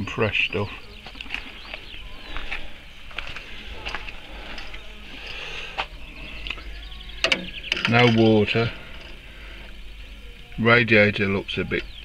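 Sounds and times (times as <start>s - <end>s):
low steady hum: 0.0s - 12.0s
clicks and knocks: 7.2s - 8.3s.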